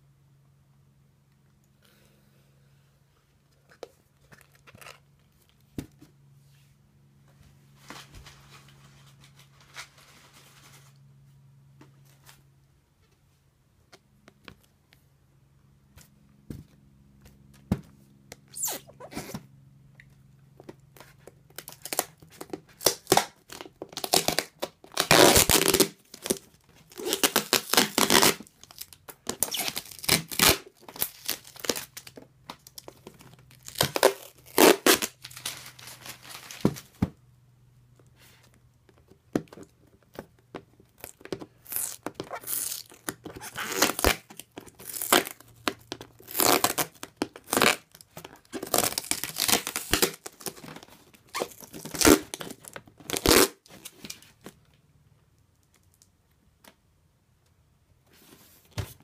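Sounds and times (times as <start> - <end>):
faint low hum: 0.0 - 53.2
packing tape ripping: 18.5 - 19.4, 21.6 - 32.1, 33.5 - 37.0, 41.0 - 54.2.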